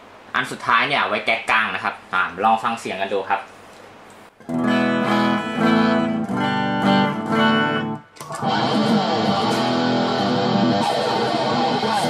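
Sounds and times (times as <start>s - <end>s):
distorted electric guitar: 4.4s - 12.0s.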